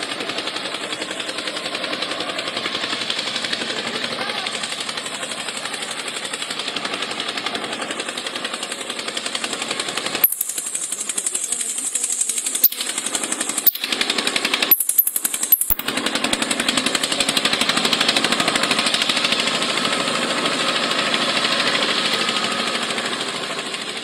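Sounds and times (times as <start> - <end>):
toy digger motor rattling: 0.0 - 24.0
sharp clicks: 10.2 - 10.9, 11.8 - 14.0, 14.7 - 15.9.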